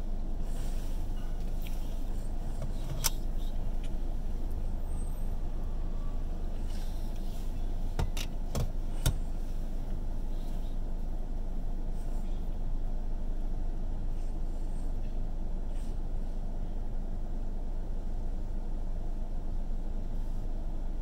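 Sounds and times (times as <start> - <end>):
car engine idling: 0.0 - 14.2.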